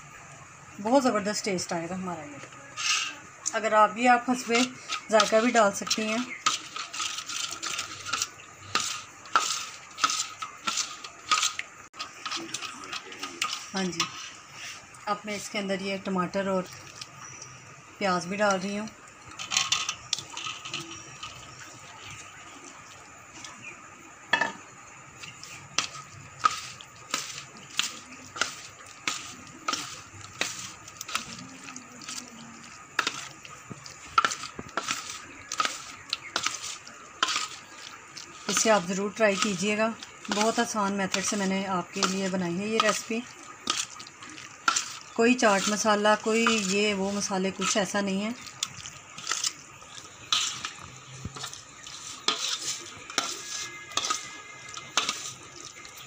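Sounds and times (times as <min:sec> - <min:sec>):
spoon scraping a steel plate: 0:02.7 - 0:03.3, 0:04.5 - 0:14.8, 0:19.4 - 0:21.5, 0:25.2 - 0:32.2, 0:33.0 - 0:44.0, 0:44.6 - 0:48.0, 0:50.2 - 0:55.5.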